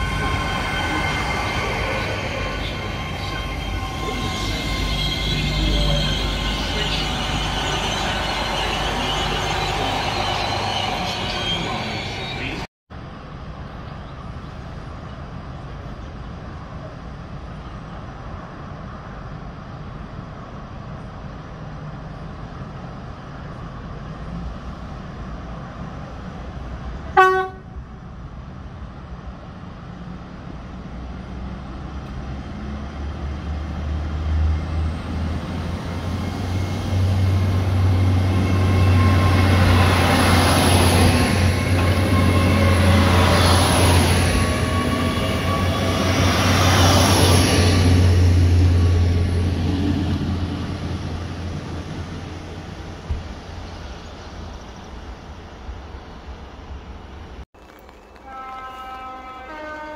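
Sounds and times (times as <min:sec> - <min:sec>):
train horn toot: 0:00.0 - 0:09.8, 0:27.1 - 0:27.8, 0:37.8 - 0:46.3, 0:58.2 - 0:59.9
train engine and wheels rumbling: 0:00.0 - 0:59.9.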